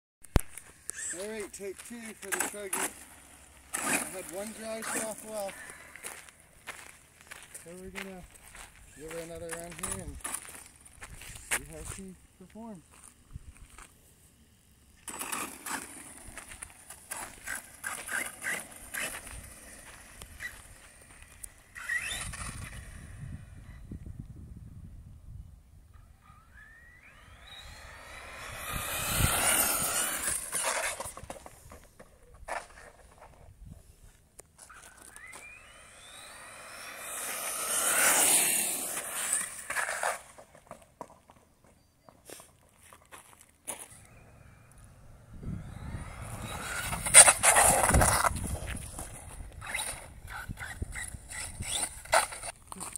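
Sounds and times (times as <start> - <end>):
tyres on gravel and pavement: 0.2 - 24.4, 25.6 - 52.9
electric motor rising whine: 0.3 - 12.0, 15.0 - 24.6, 25.8 - 32.1, 34.6 - 40.4, 43.8 - 52.6.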